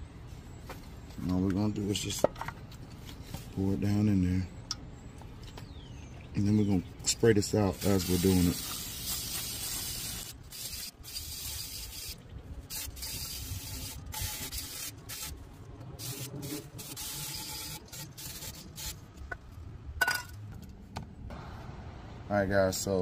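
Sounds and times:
aerosol spray hissing bursts: 7.8 - 15.3, 16.0 - 19.0.

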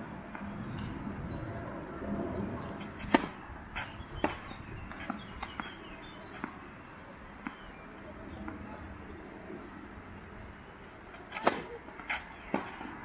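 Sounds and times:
racket striking tennis ball: 2.8 - 5.8, 11.1 - 12.9.

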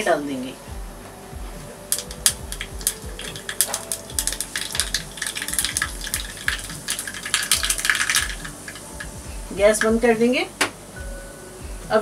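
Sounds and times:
mustard seeds popping in oil: 1.9 - 9.9.

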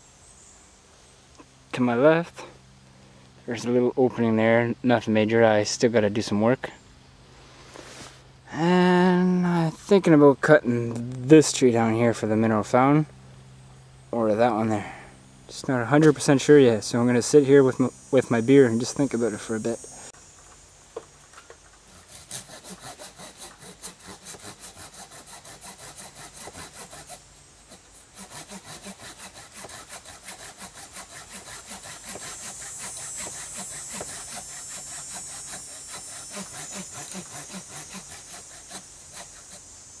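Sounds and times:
hand saw cutting wood: 21.8 - 39.6.

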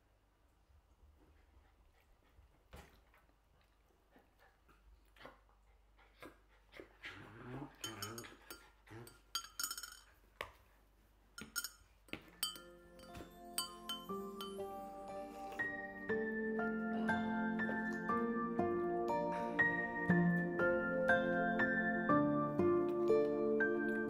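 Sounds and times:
teaspoon clinking against glass: 7.8 - 10.1, 11.4 - 11.8, 12.4 - 14.8.

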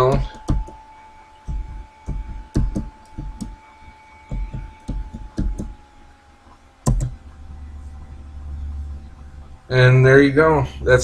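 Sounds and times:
keyboard typing: 0.0 - 0.8, 1.5 - 3.6, 4.3 - 5.8, 6.8 - 7.2
steady low hum: 0.0 - 11.0.

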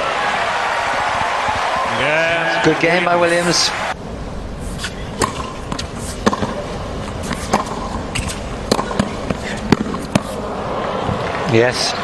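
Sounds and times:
steady background hush: 0.2 - 12.0
tennis racquet strikes: 4.7 - 10.4
tennis ball bounces: 5.2 - 10.4.

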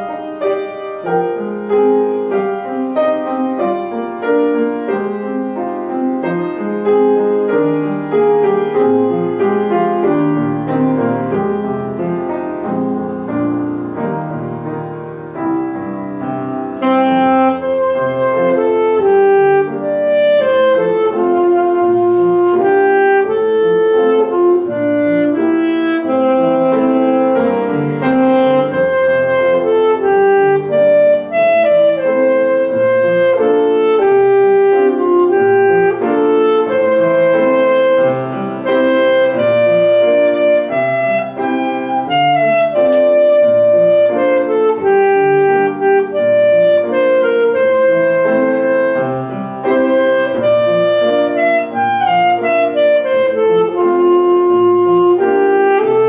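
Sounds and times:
piano chords: 0.0 - 56.0
saxophone long notes: 16.2 - 56.0.

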